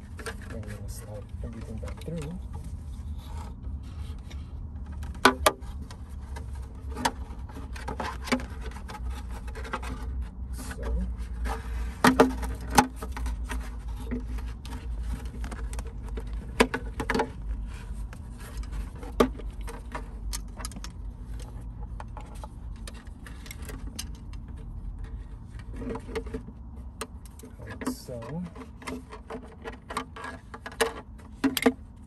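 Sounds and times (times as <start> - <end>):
belt webbing rubbing and scraping: 0.0 - 12.0.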